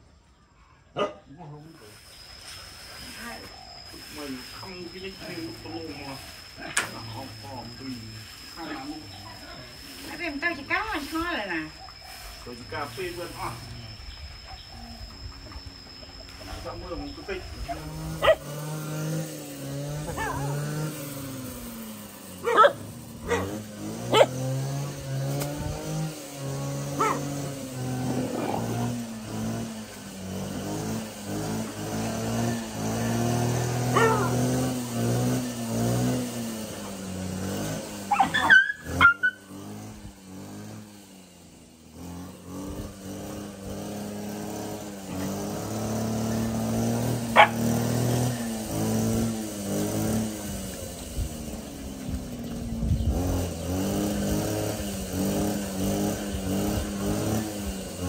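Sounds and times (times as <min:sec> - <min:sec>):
dogs barking and yelping: 0:08.6 - 0:09.9, 0:11.7 - 0:12.4, 0:14.2 - 0:16.5, 0:17.7 - 0:25.1, 0:26.7 - 0:30.2, 0:30.9 - 0:35.5, 0:37.8 - 0:39.8, 0:44.8 - 0:49.4.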